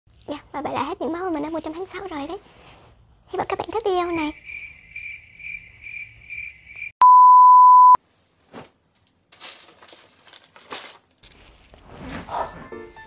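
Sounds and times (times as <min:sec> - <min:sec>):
clothes and plastic rustling: 0:00.1 - 0:03.9, 0:08.1 - 0:13.0
steady electronic beep: 0:07.0 - 0:08.0.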